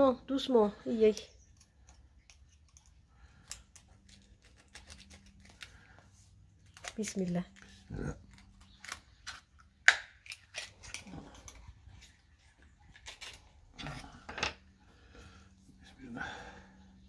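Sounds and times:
knife scraping oyster shell: 0:01.4 - 0:05.8, 0:06.6 - 0:12.3
shell cracking: 0:01.5 - 0:06.0, 0:06.6 - 0:11.6.

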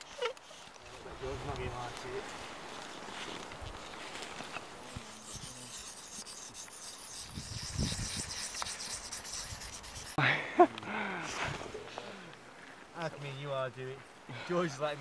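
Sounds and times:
dry wood scraping: 0:00.0 - 0:10.2.

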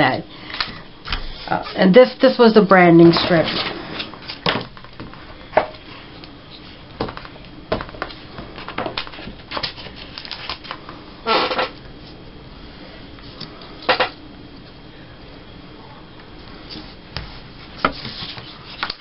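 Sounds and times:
paper strips rustling: 0:08.0 - 0:10.8, 0:17.8 - 0:19.0.

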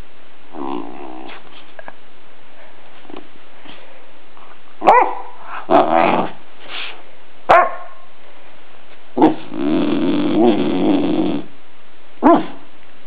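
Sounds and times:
puppy groaning: 0:00.5 - 0:01.5, 0:05.4 - 0:06.4, 0:09.2 - 0:11.5
puppy barking: 0:04.8 - 0:06.4, 0:07.5 - 0:08.1, 0:12.2 - 0:12.6.

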